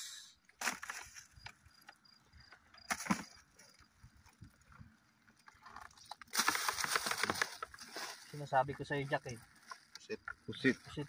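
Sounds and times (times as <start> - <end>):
wet plastic bag rustling: 2.9 - 11.0
water splashing in a plastic bucket: 5.8 - 8.4.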